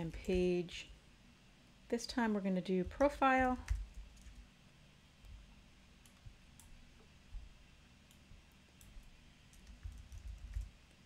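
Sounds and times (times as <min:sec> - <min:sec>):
computer mouse clicks: 0:06.0 - 0:06.7.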